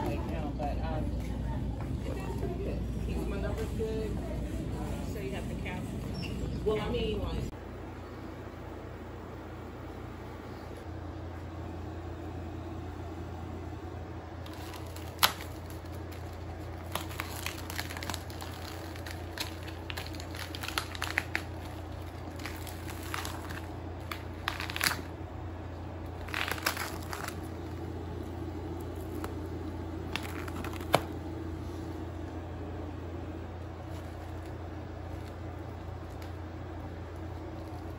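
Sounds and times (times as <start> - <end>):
low hum: 0.0 - 37.9
plastic wrap crinkling and tearing: 14.4 - 25.2, 25.8 - 31.3, 33.8 - 37.9.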